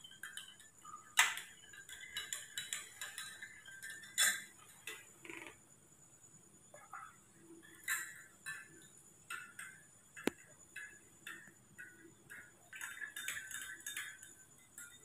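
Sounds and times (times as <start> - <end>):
spoon clinking in glass mug: 0.1 - 4.6, 11.3 - 15.0.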